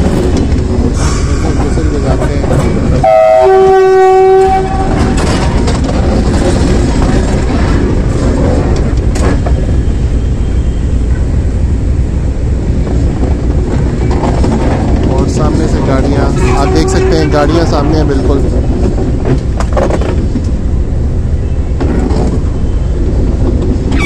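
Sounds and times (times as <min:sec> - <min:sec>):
locomotive rumbling over rails: 0:00.0 - 0:24.0
locomotive horn blast: 0:03.0 - 0:05.2, 0:16.3 - 0:17.5.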